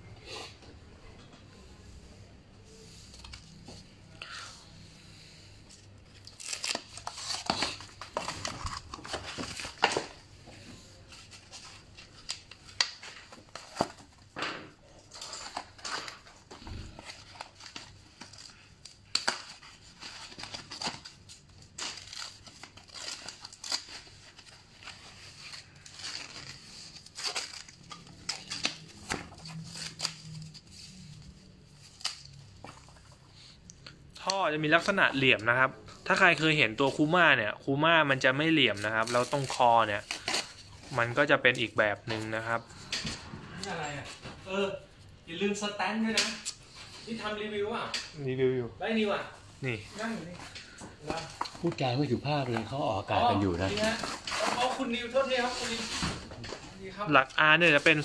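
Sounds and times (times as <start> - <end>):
plastic and bubble wrap crinkling: 5.7 - 33.5, 34.2 - 42.8, 48.8 - 58.0
tape and foam tearing: 6.2 - 9.9.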